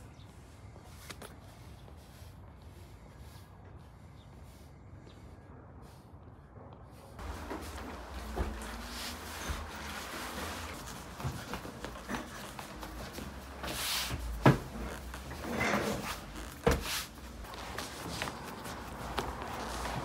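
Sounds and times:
hands rubbing and folding dough: 0:07.0 - 0:20.0.

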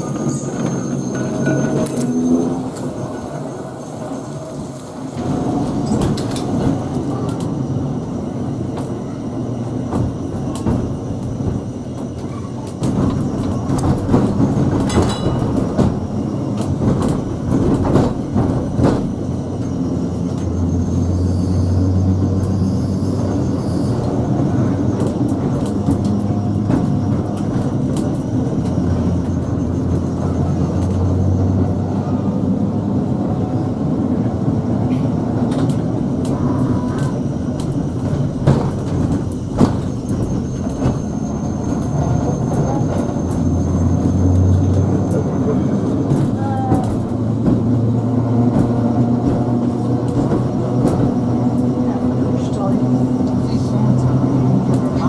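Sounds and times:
tram wheels rumbling on rail: 0:00.0 - 0:55.0.

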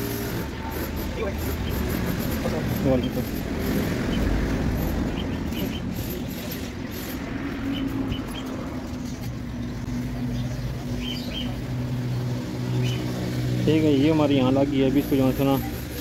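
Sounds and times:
engine hum: 0:00.0 - 0:16.0
road traffic rumble: 0:00.0 - 0:16.0.

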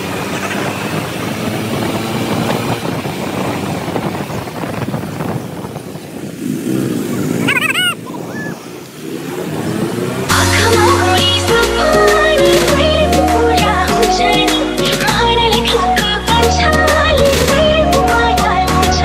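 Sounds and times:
motorcycle engine under load: 0:00.0 - 0:08.0.

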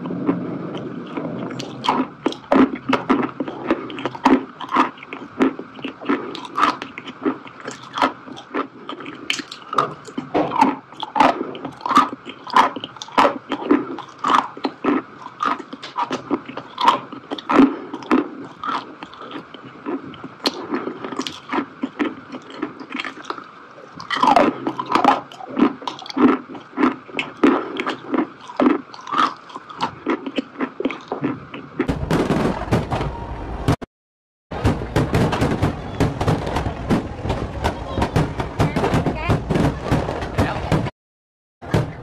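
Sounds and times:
close-miked chewing: 0:00.0 - 0:31.9
fireworks crackling: 0:31.9 - 0:33.0, 0:34.6 - 0:40.6.

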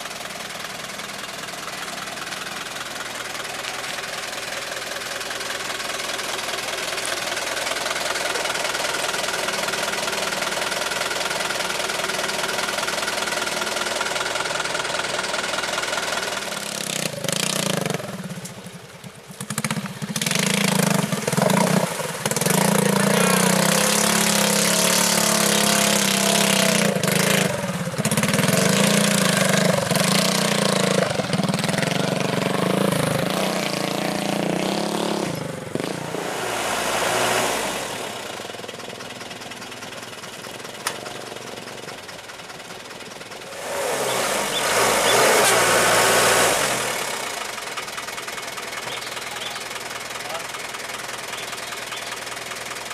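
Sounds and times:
truck engine revving hard: 0:15.3 - 0:18.3, 0:19.4 - 0:38.8, 0:43.4 - 0:47.8.

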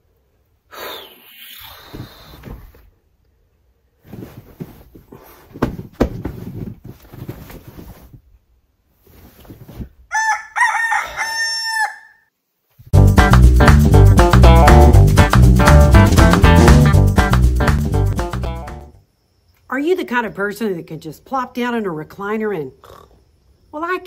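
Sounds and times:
bedding rustling: 0:03.8 - 0:10.1
rooster crowing: 0:10.1 - 0:12.3.

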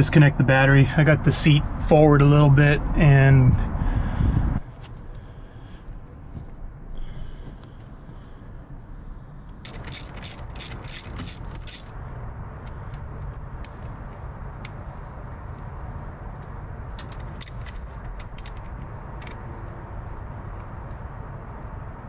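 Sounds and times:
steady low rumble: 0:00.0 - 0:22.0
socket ratchet clicking: 0:09.6 - 0:11.9.

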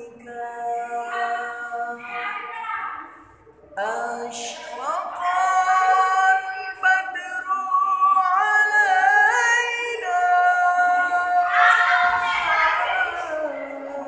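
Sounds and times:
man singing devotional song: 0:00.0 - 0:02.1, 0:03.8 - 0:11.6, 0:12.9 - 0:14.0.

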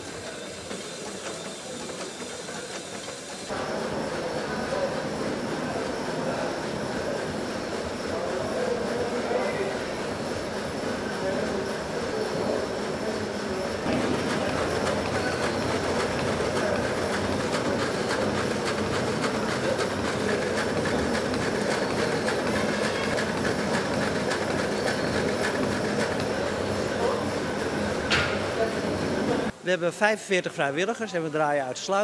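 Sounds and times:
steam engine clattering: 0:00.0 - 0:03.6, 0:10.9 - 0:28.7.

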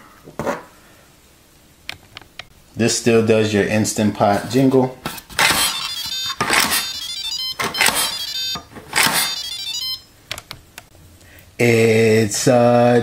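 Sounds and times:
electronic beeping jingle: 0:05.6 - 0:10.1.

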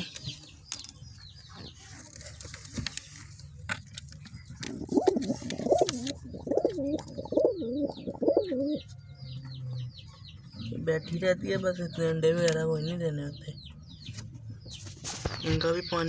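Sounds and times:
pigeon cooing: 0:04.6 - 0:09.0.

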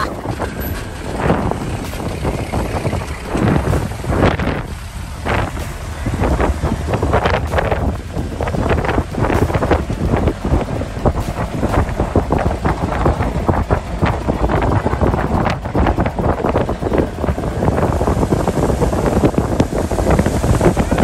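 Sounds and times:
jeep engine running: 0:00.0 - 0:21.0
wind buffeting microphone: 0:00.0 - 0:21.0.

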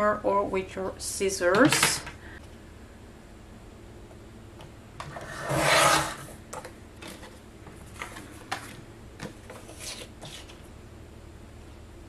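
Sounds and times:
blade rasping through cardstock: 0:05.2 - 0:06.2.

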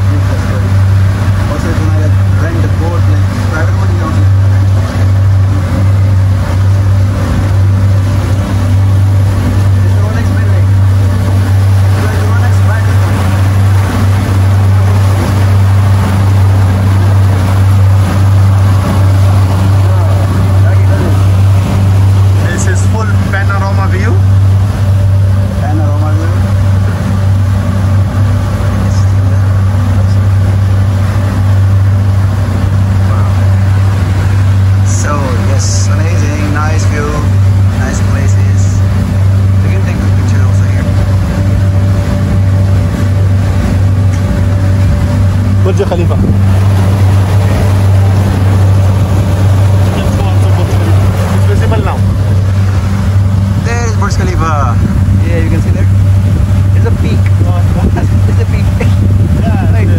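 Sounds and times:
boat engine droning: 0:00.0 - 0:59.9
water rushing: 0:00.0 - 0:59.9.

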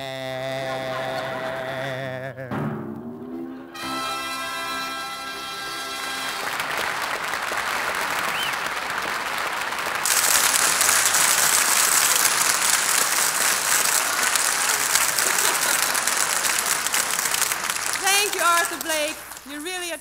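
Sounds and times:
audience applauding: 0:05.2 - 0:20.0.

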